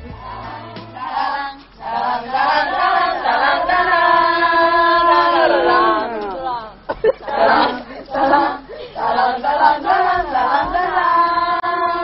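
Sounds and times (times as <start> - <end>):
young women chanting in unison: 0.2 - 12.0.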